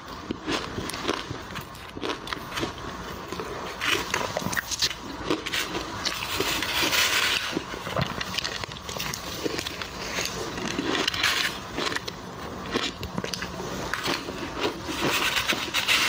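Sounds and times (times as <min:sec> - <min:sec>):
crunching ice between teeth: 0:00.3 - 0:15.5
spoon scraping crushed ice: 0:03.8 - 0:07.6, 0:09.0 - 0:12.1, 0:13.9 - 0:16.0.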